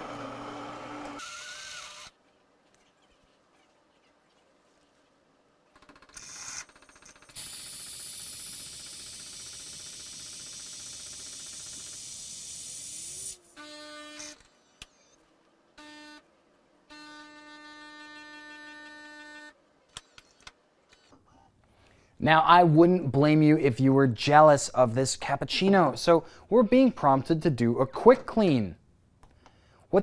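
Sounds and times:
espresso machine pump humming: 0:00.0 - 0:01.2, 0:07.4 - 0:13.4
steam hissing: 0:07.4 - 0:13.4.

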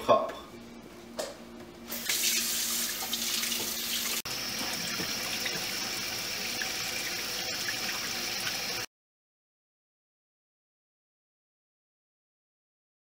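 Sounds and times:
faucet running into sink: 0:01.9 - 0:08.9.

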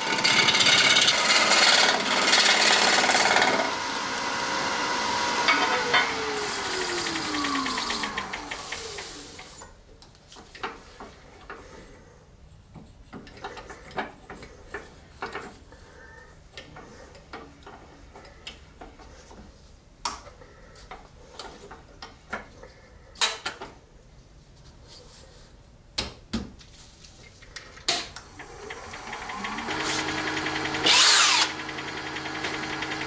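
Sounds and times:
wood lathe spinning down: 0:00.0 - 0:09.6, 0:28.1 - 0:33.0.

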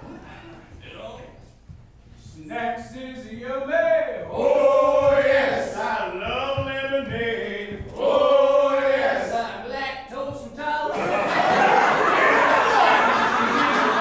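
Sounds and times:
men singing a cappella: 0:02.6 - 0:09.6.

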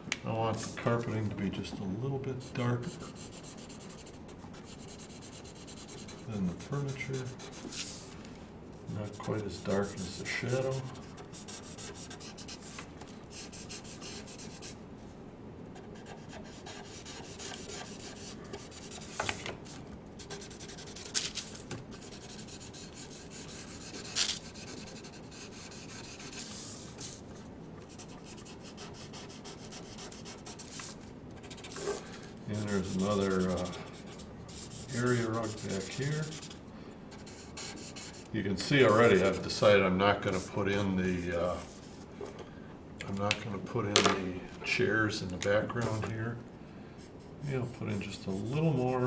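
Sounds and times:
marker scratching on paper: 0:02.4 - 0:08.0, 0:09.1 - 0:14.8, 0:15.8 - 0:27.2, 0:27.8 - 0:39.6.

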